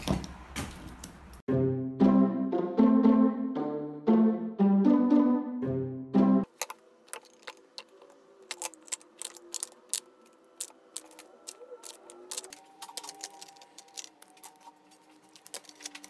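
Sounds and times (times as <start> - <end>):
plastic cases clicking on glass: 6.5 - 16.0.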